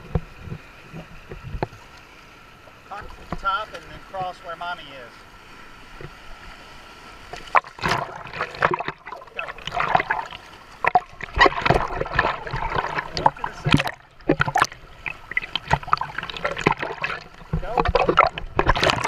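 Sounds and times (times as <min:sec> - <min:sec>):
small waves breaking: 0:00.0 - 0:19.0
water splashing against camera: 0:07.3 - 0:19.0.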